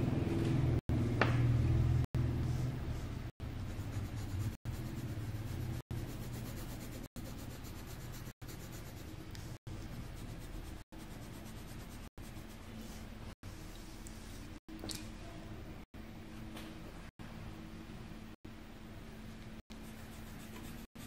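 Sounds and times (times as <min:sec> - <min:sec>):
pen scratching on paper: 0:03.4 - 0:12.6.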